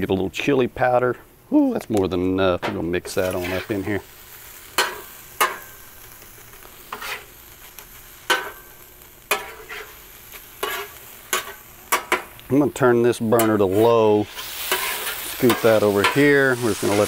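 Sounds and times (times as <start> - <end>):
chicken sizzling: 1.6 - 17.0
spatula scraping on griddle: 3.1 - 12.3, 13.3 - 17.0.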